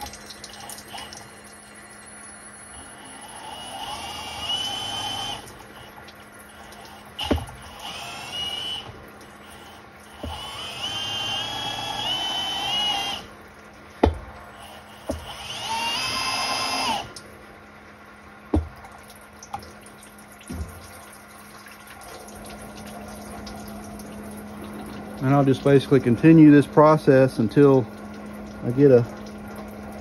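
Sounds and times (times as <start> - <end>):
electric drill spinning: 2.6 - 13.3, 14.5 - 17.2.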